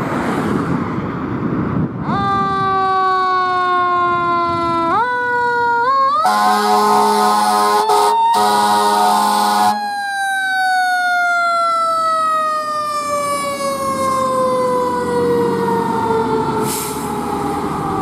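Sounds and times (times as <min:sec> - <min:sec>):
siren wailing: 0:02.5 - 0:18.0
fire engine air horn: 0:06.2 - 0:10.1.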